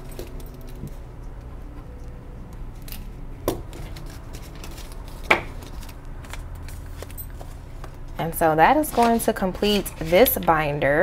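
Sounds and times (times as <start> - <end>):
banknotes crackling and rustling: 3.6 - 11.0.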